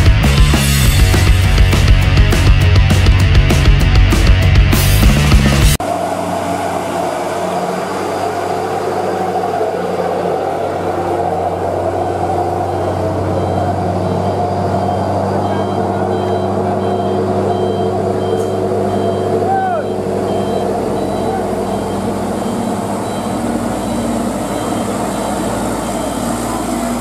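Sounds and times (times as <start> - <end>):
truck diesel engine running: 0.0 - 27.0
reversing alarm beeps: 11.4 - 27.0.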